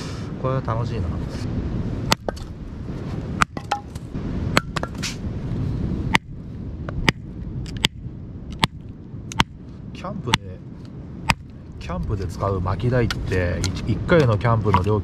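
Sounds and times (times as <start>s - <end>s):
hatchet splitting firewood: 2.0s - 2.6s, 3.3s - 5.2s, 6.1s - 8.0s, 8.6s - 9.6s.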